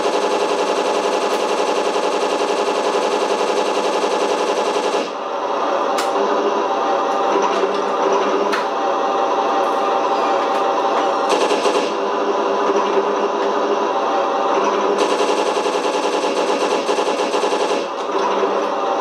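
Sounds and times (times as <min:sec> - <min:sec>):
simulated machine-gun fire: 0:00.0 - 0:05.2, 0:11.2 - 0:13.3, 0:14.7 - 0:18.6.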